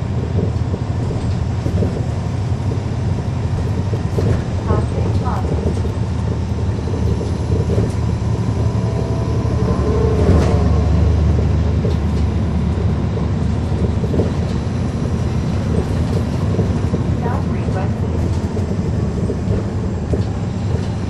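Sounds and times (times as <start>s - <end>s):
bus diesel engine rumble: 0.0s - 21.0s.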